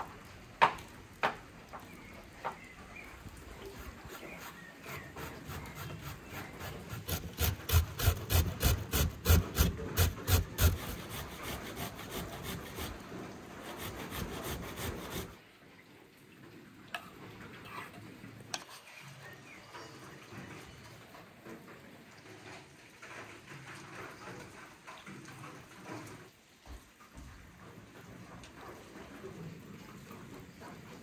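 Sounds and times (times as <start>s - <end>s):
carrot grating on metal grater: 3.7s - 13.0s, 13.6s - 15.4s.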